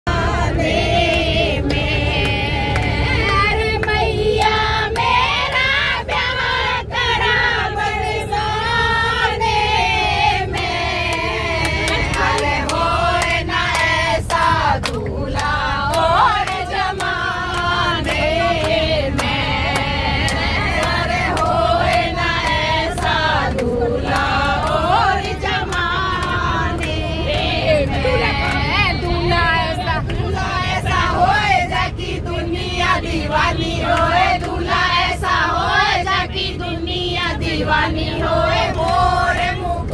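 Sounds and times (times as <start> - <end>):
bus rumble: 0.0 - 39.9
women singing together: 0.1 - 39.9
hand claps: 10.6 - 24.8, 25.6 - 29.2.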